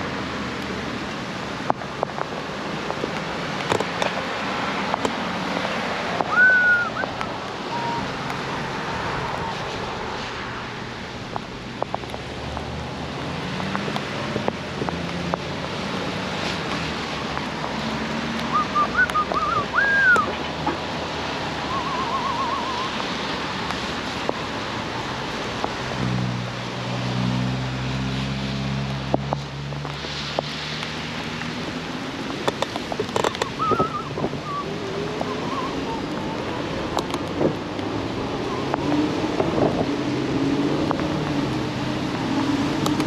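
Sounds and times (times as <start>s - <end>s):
wind and tyre noise: 0.0s - 43.0s
whistled chirps: 6.3s - 7.1s, 7.7s - 8.1s, 18.5s - 20.3s, 21.6s - 23.0s, 33.4s - 34.7s.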